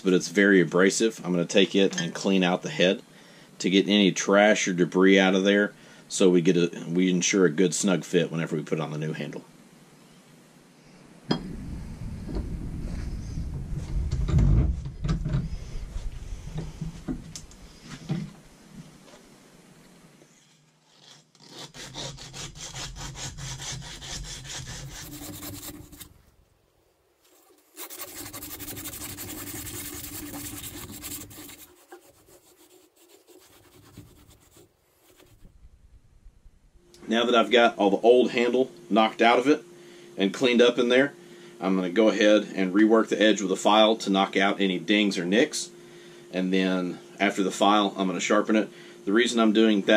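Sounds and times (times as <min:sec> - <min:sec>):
abrasive belt scraping metal: 0:20.3 - 0:26.2, 0:27.3 - 0:35.4
quick rasping strokes: 0:20.3 - 0:26.2, 0:27.2 - 0:35.7.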